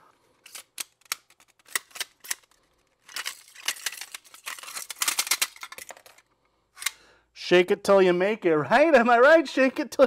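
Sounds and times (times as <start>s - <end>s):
lens parts clicking and knocking: 0.4s - 6.2s
lens barrel rattling: 0.5s - 6.2s.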